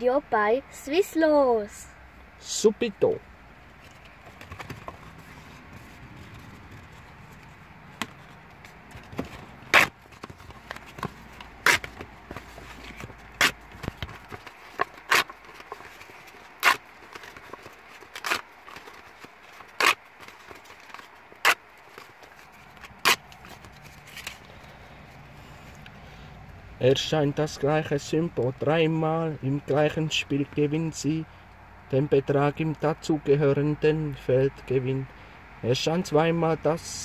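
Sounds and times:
paper tickets tearing: 4.0s - 24.8s.

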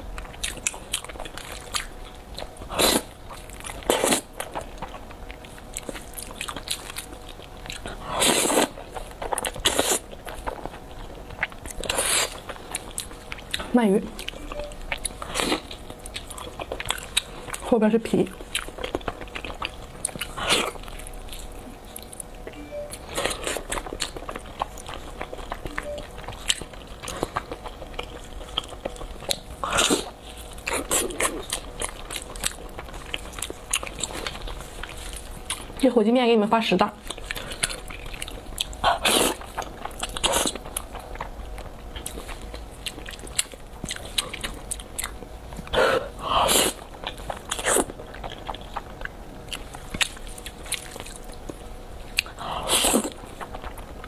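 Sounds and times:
wet chewing and lip smacks: 0.1s - 17.6s, 18.4s - 35.8s, 37.0s - 45.8s, 46.5s - 54.0s.

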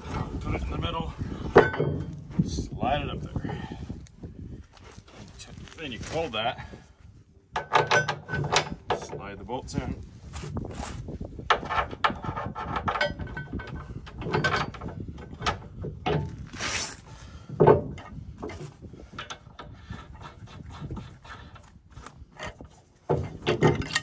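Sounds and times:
metal bolts clinking and scraping: 1.5s - 2.3s, 4.7s - 5.4s, 7.5s - 9.4s, 10.4s - 20.2s, 22.4s - 24.0s.

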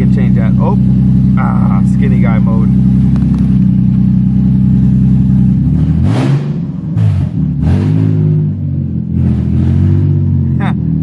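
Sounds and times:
car engine idling: 0.0s - 11.0s
engine revving: 0.0s - 11.0s.

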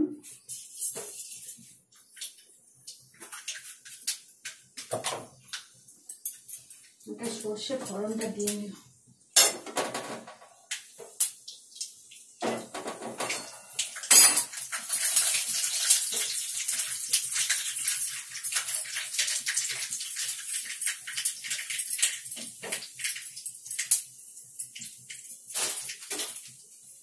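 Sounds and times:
mustard seeds crackling in hot oil: 0.3s - 9.4s, 10.6s - 27.0s
utensils clinking: 13.2s - 16.4s.

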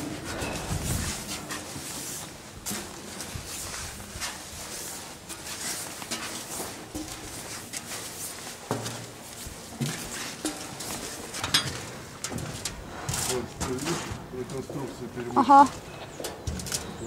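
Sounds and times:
footsteps on steel stairs: 0.0s - 17.0s.

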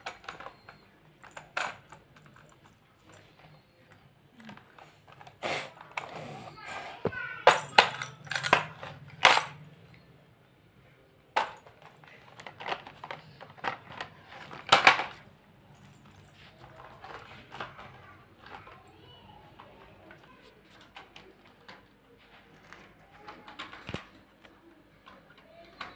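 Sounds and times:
toys knocking and clattering: 0.0s - 10.0s, 11.2s - 25.9s
faint voices: 2.1s - 11.2s.

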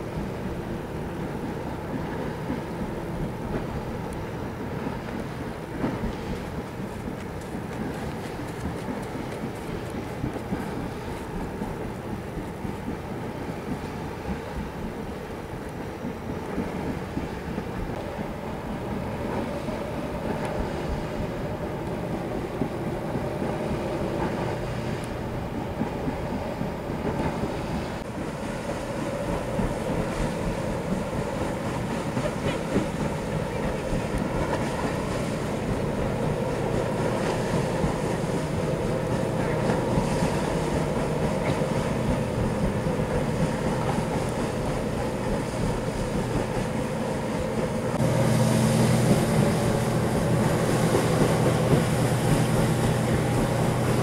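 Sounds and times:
wind buffeting microphone: 0.0s - 54.0s
ship diesel engines rumbling: 16.8s - 54.0s.

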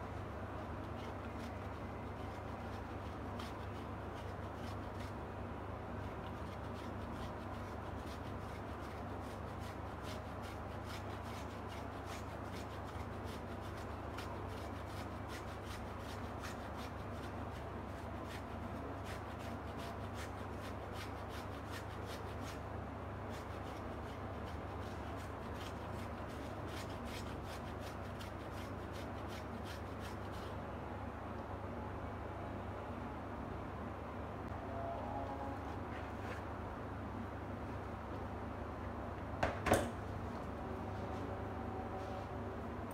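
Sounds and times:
cheese grating on metal grater: 0.9s - 5.2s, 6.2s - 22.6s, 23.3s - 30.5s.

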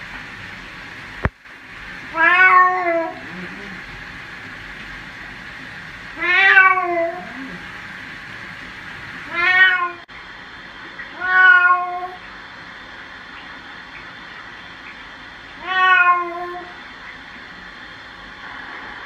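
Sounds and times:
cat meowing: 2.2s - 3.2s, 6.2s - 7.6s, 9.3s - 10.0s, 11.2s - 12.2s, 15.6s - 16.7s.

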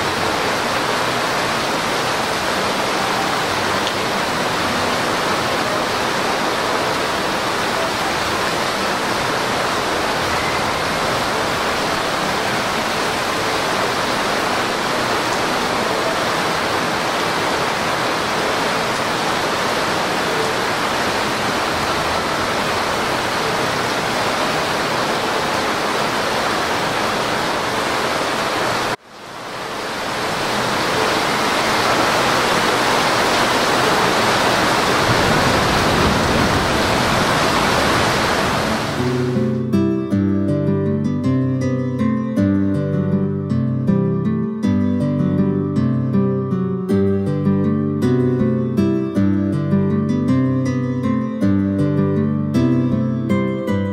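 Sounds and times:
torrential rain pouring: 0.0s - 40.8s.

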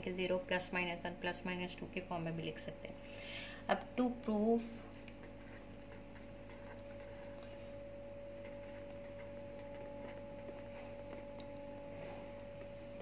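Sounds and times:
steady low hum: 0.0s - 13.0s
pen scratching on paper: 5.2s - 7.4s.

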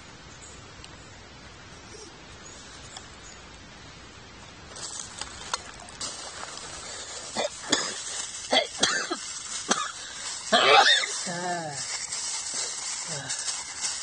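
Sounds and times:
plastic bags rustling: 4.7s - 14.0s.

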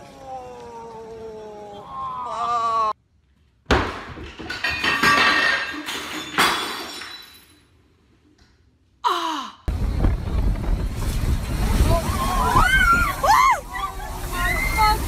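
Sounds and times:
glass clattering and breaking: 3.9s - 7.7s.

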